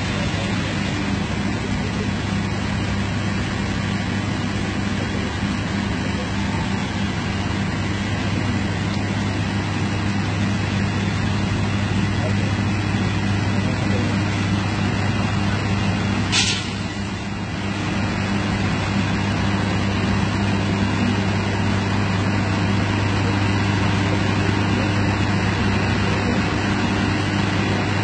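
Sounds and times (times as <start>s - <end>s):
locomotive engine droning: 0.0s - 28.0s
rain hissing: 0.0s - 28.0s
brief sharp hiss: 16.3s - 17.0s.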